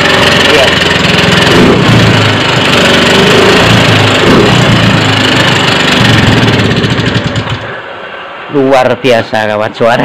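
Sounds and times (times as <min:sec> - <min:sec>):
scooter engine revving with clattering knock: 0:00.0 - 0:07.8.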